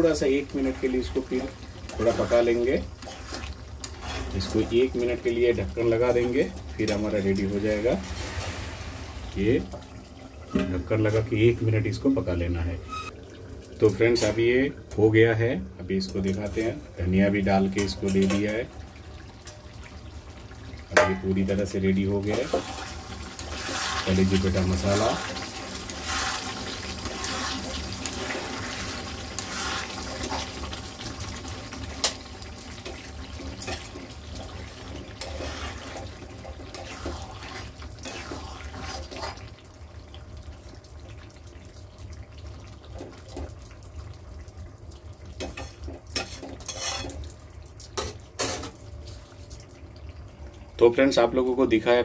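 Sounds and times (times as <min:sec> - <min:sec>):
gravy bubbling and sloshing: 0:00.0 - 0:51.0
spoon scraping a pan: 0:01.9 - 0:04.4, 0:22.3 - 0:24.1, 0:24.9 - 0:30.7, 0:32.8 - 0:39.5, 0:45.4 - 0:47.2, 0:48.0 - 0:48.8.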